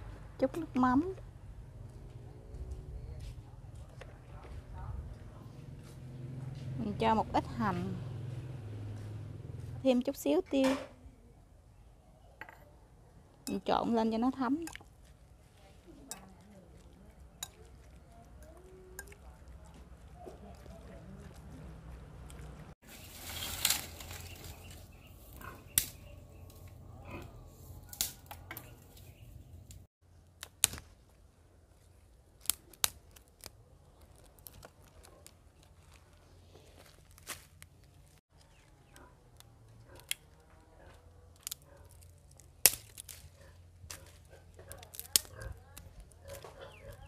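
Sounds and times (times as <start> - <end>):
dry twigs and leaves rustling: 22.2 - 47.0
dry branches snapping: 22.9 - 26.8, 27.8 - 31.2, 32.3 - 47.0.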